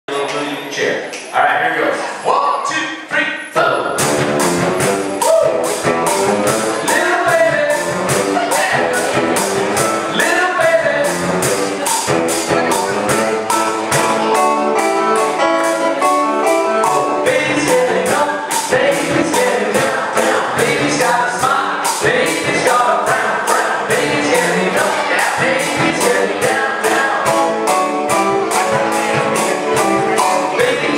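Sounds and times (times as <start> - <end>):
live band playing: 3.9 - 30.9
singing: 17.0 - 27.5, 30.2 - 30.9.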